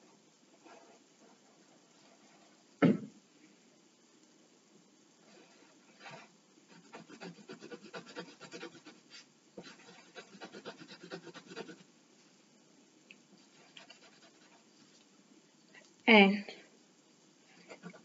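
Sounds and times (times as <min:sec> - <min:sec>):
pencil scratching on paper: 0:06.0 - 0:11.8, 0:13.5 - 0:14.6.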